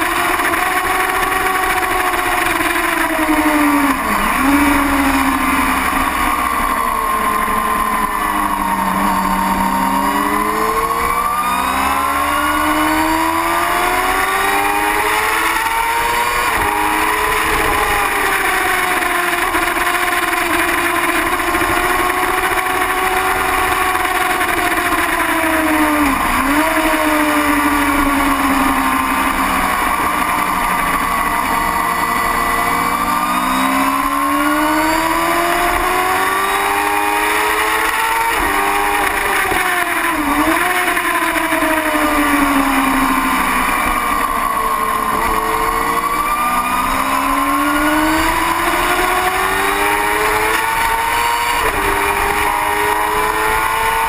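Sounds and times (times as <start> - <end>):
racing motorcycle engine at high revs: 0.0 - 54.0.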